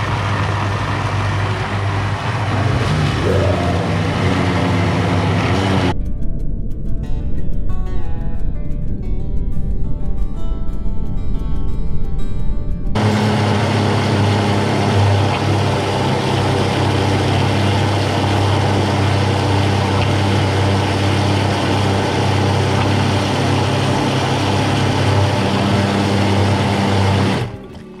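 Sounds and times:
blender grinding: 0.0 - 5.9, 13.0 - 27.6.

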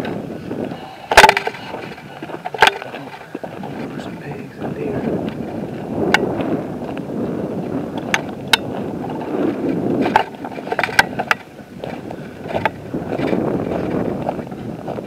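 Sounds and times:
wind on microphone: 0.0 - 15.0
rubbing on microphone: 1.5 - 6.6.

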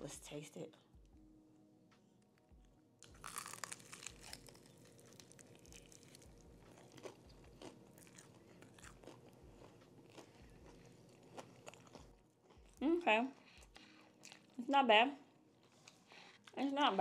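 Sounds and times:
crunch of fried chicken bite: 3.0 - 12.2
chewing with small crackles: 3.0 - 14.6.

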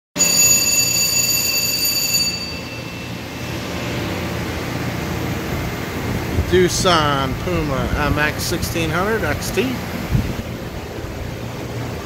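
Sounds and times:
high-pitched whine: 0.2 - 8.9
shop machinery humming: 0.2 - 12.0.

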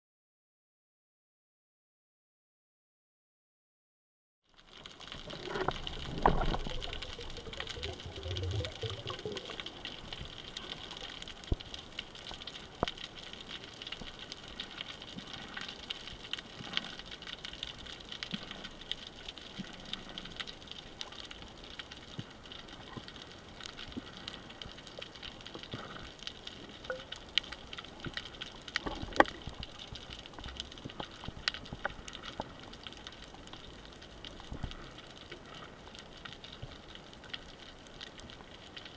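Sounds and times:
sharp underwater clicks: 4.7 - 38.9
moving water stirring: 5.0 - 11.8.

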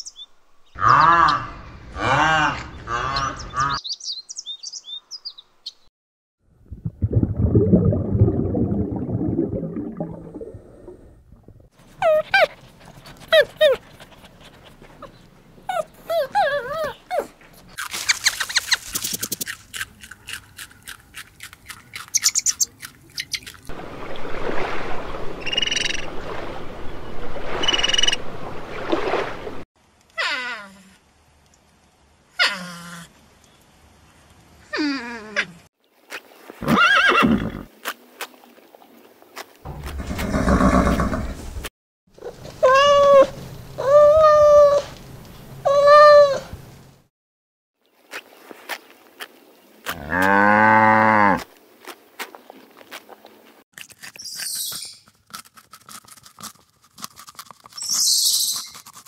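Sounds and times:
squeaky chirps: 17.9 - 19.4, 22.1 - 23.5, 54.2 - 55.1, 57.8 - 58.9
fast animal rattle: 17.9 - 19.6.

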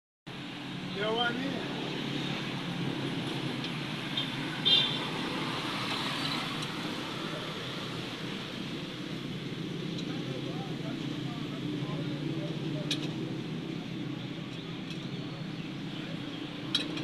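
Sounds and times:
street traffic noise: 0.3 - 17.0
lug wrench metallic clink: 16.7 - 17.0.

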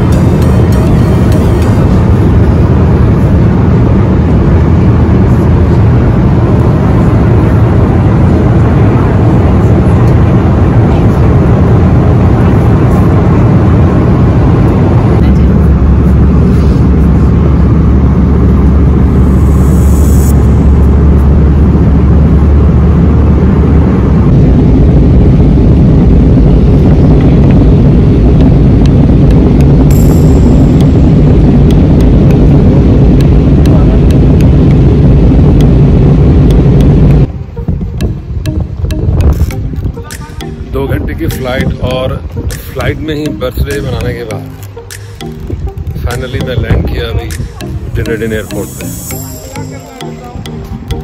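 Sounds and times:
jet airliner cabin rumble: 0.0 - 40.1.

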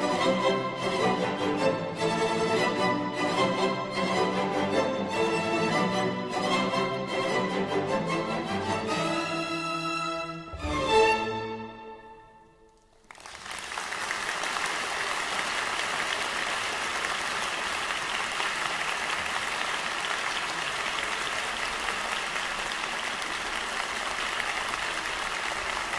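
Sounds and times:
string orchestra chord: 0.0 - 12.5
audience applause: 12.7 - 25.9.

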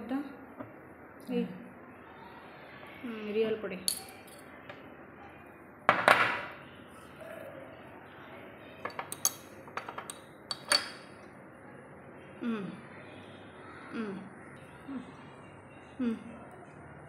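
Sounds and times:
spoon clinking on ceramic dishes: 3.9 - 4.4, 8.9 - 11.1
dishes clattering: 8.8 - 11.1.

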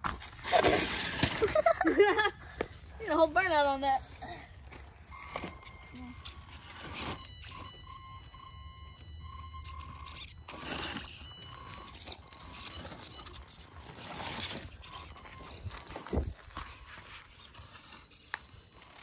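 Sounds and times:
tyres scrabbling over dirt: 3.0 - 7.8, 9.7 - 19.0
rc car motor whine: 4.7 - 19.0.

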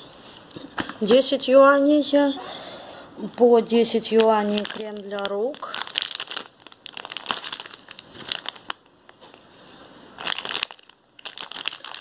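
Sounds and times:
plastic packaging crinkling: 3.3 - 9.5, 10.2 - 12.0.

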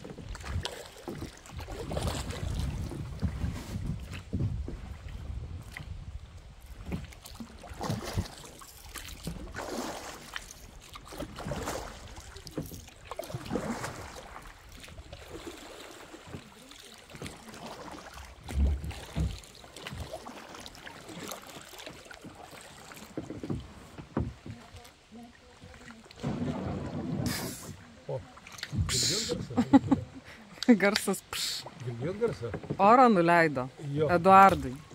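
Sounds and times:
paddle strokes splashing in water: 0.0 - 34.9
low thump: 26.2 - 27.8.

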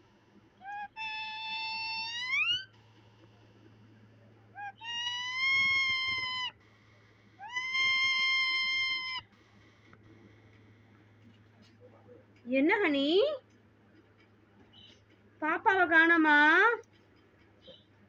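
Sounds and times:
parakeet calling: 0.6 - 2.7, 4.5 - 6.7, 7.4 - 9.3.

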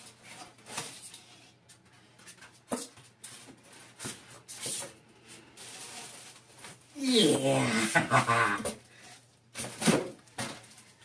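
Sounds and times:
foam scraping against cardboard: 5.5 - 6.5.

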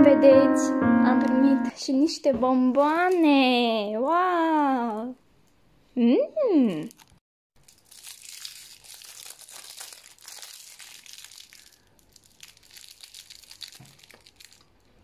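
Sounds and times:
candy wrapper crinkling: 6.7 - 15.0.

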